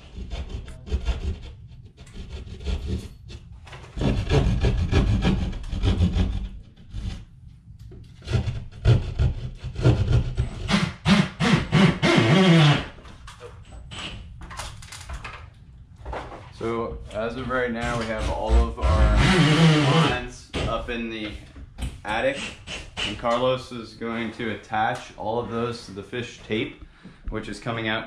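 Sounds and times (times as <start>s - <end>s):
hand tool scraping drywall: 0.0s - 7.3s, 17.2s - 20.2s.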